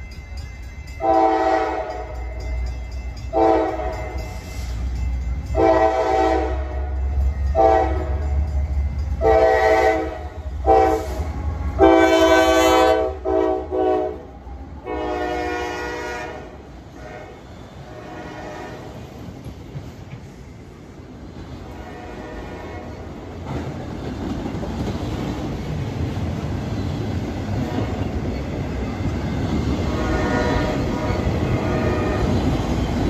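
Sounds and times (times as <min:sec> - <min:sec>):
locomotive air horn blasts: 0:01.0 - 0:02.1, 0:03.4 - 0:04.3, 0:05.6 - 0:08.2, 0:09.2 - 0:19.0, 0:21.8 - 0:23.0, 0:29.9 - 0:32.4.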